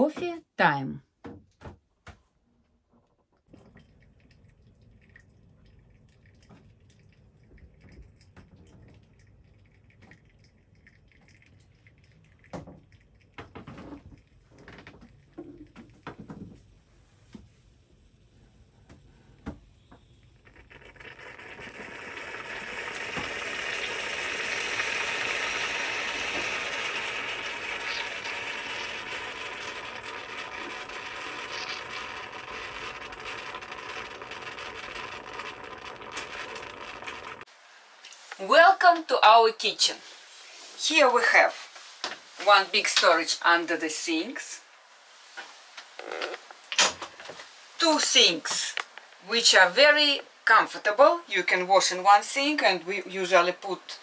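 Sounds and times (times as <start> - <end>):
moka pot hissing rush: 15.4 - 37.5.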